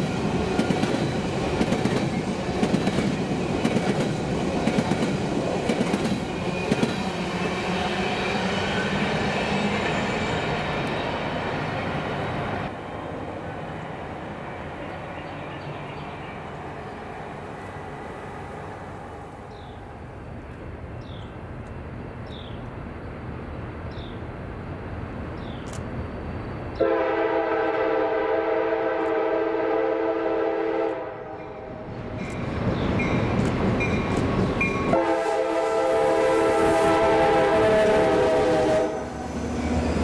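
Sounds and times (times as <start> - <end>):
low rumble of train movement: 0.0 - 40.0
train air horn blast: 26.8 - 31.4, 34.9 - 39.1.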